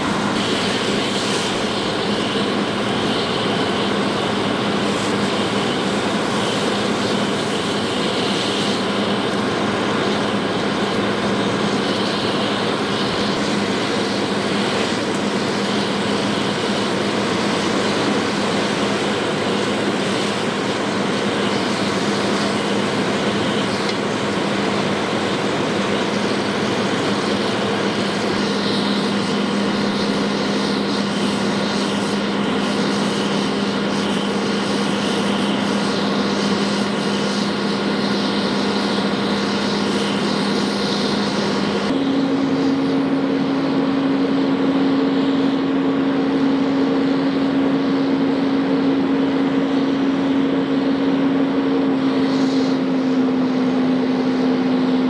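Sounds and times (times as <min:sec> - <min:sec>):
broad hiss: 0:00.0 - 0:41.9
large engine droning: 0:00.0 - 0:55.0.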